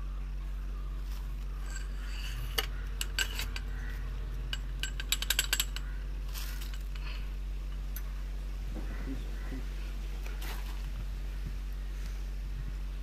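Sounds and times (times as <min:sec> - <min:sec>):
metal clicks and clinks: 0:01.6 - 0:03.8, 0:04.5 - 0:07.1.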